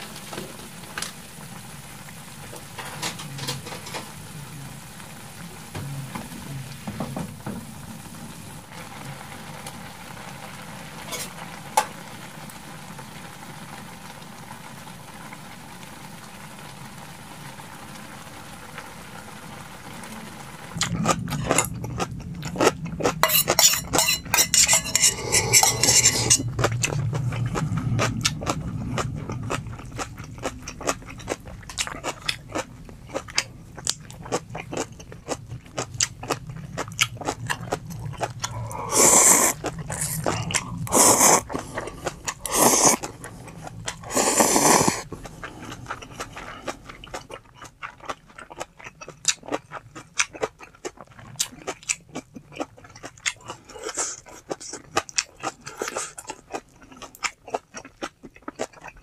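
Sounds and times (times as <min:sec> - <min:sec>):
noodle slurps: 0:20.8 - 0:31.0, 0:36.3 - 0:46.7, 0:53.4 - 0:56.6
crunching and chewing: 0:20.8 - 0:59.0.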